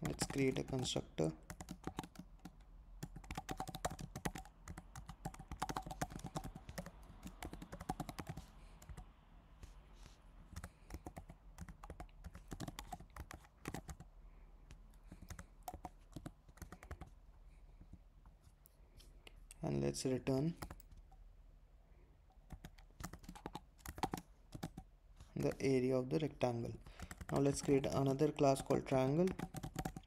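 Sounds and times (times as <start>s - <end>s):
computer keyboard typing: 0.0s - 9.1s, 10.5s - 14.1s, 14.9s - 17.2s, 20.5s - 21.0s, 22.4s - 25.8s, 26.6s - 30.0s.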